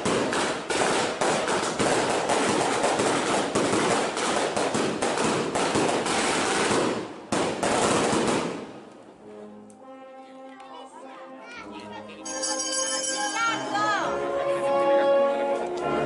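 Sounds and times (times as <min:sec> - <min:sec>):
fireworks bangs and crackling: 0:00.0 - 0:09.1.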